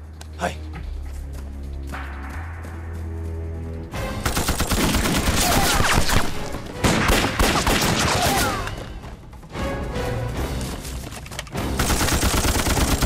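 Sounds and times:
rapid gunfire: 4.2 - 8.4, 11.8 - 13.0.

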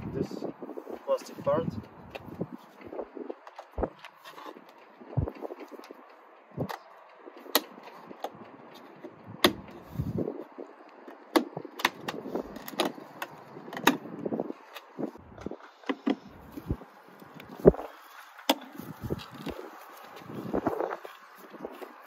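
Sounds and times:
plastic trim clicks and snaps: 11.1 - 14.0.

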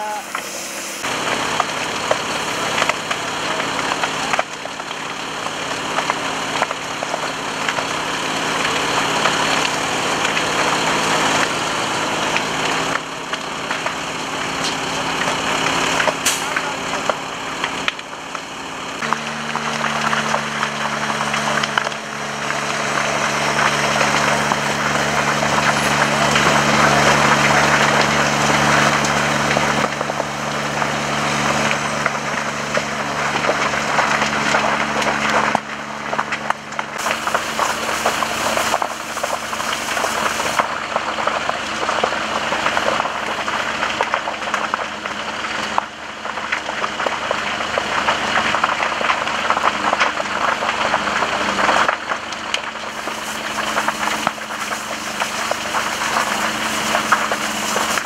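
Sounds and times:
fire engine humming: 0.0 - 58.0
brush burning hiss: 37.0 - 40.7, 52.8 - 58.0.

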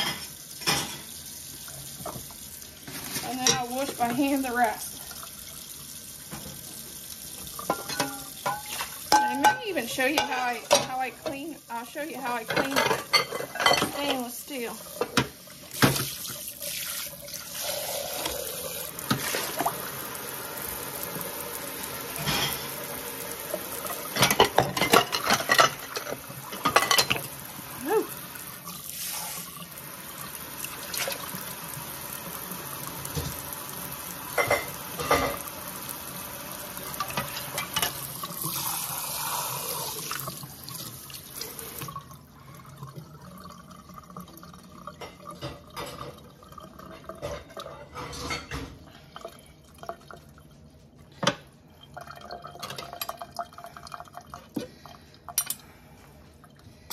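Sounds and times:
faucet water running into sink: 0.0 - 50.5
dishes clinking and knocking: 7.6 - 11.4, 12.4 - 14.3, 23.8 - 27.3, 34.4 - 35.4, 46.9 - 48.8
dishes being scrubbed: 7.6 - 19.8, 23.8 - 27.3.

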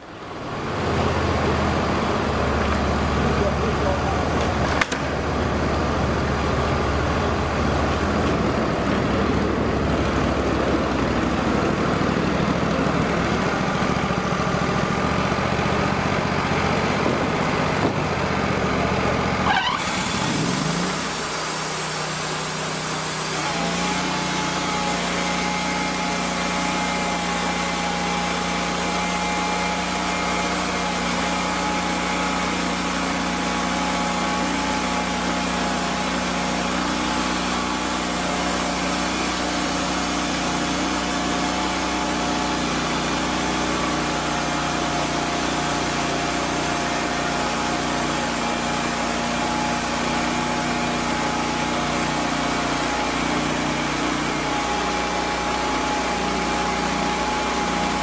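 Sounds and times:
sawmill engine running: 0.0 - 58.0
band blade sawing log: 19.4 - 58.0.

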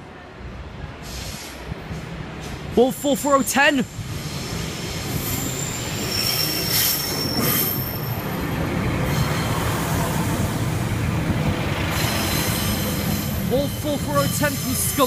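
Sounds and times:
train engine and wheels rumbling: 0.0 - 15.0
wheel squeal: 5.2 - 8.3.

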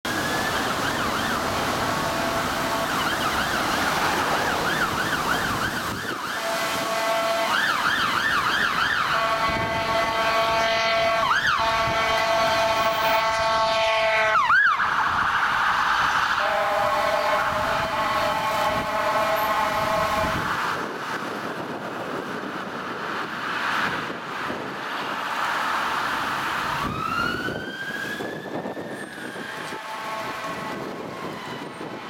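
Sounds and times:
ambulance siren yelping: 0.1 - 19.8, 26.7 - 32.0
air horn chord: 6.4 - 7.5, 9.2 - 14.4, 16.4 - 20.5, 29.7 - 30.9.

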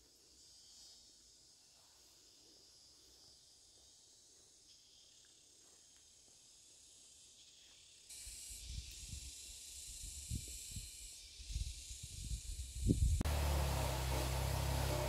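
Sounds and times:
high-pitched insect drone: 0.0 - 15.0
loud steady hiss: 6.7 - 15.0.

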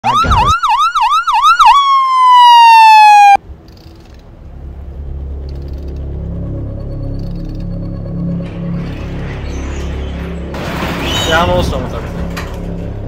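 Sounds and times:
siren yelping wail: 0.0 - 3.4
low drone: 3.4 - 13.0.

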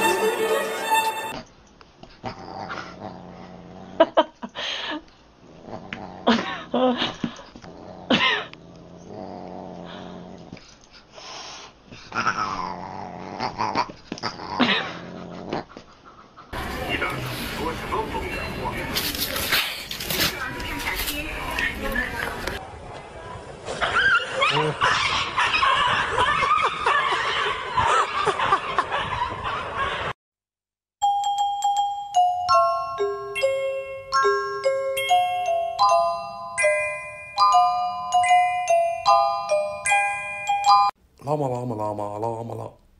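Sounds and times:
cat growling and yowling: 12.1 - 15.0
scuffling rustles and clicks: 18.9 - 22.6
dogs yelping and whining: 23.7 - 28.1
glockenspiel chiming tune: 31.0 - 41.0.

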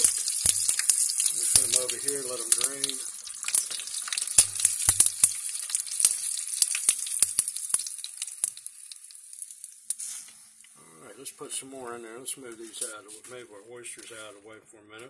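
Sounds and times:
food deep-frying in hot oil: 0.0 - 10.8.

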